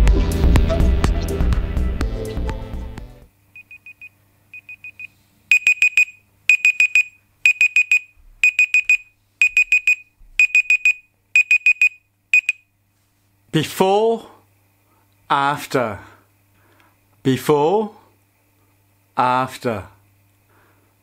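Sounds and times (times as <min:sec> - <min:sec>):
timer alarm quick high beeps: 0:03.6 - 0:12.6.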